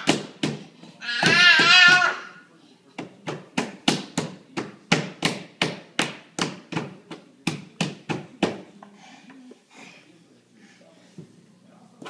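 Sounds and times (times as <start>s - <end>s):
baby slapping a wall: 0.0s - 2.3s.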